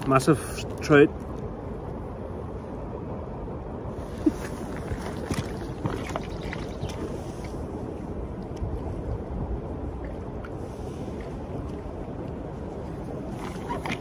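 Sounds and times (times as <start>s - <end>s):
river running over stones: 0.0s - 2.6s, 3.8s - 14.0s
wind on microphone: 0.0s - 14.0s.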